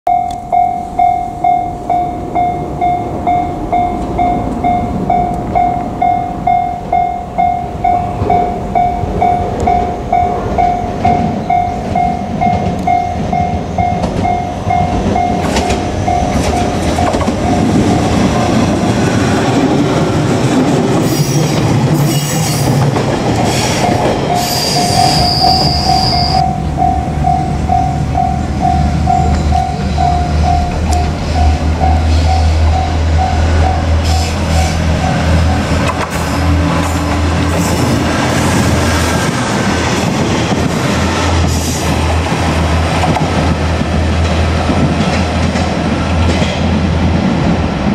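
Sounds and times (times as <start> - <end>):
level crossing warning bell ringing: 0.1 - 18.9, 23.6 - 36.0
train wheel clatter and rumble: 1.4 - 47.9
high wheel squeal: 23.4 - 38.0.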